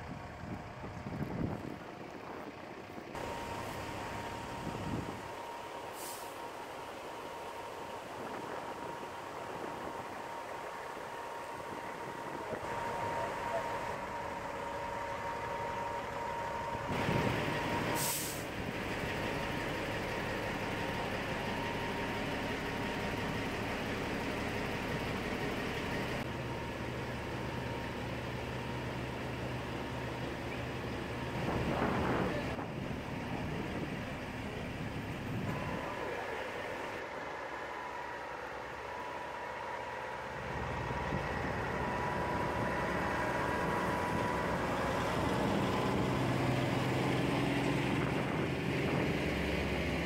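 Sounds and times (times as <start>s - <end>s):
heavy diesel engines running: 0.0s - 50.0s
air brake hiss: 5.8s - 6.5s, 17.8s - 18.5s.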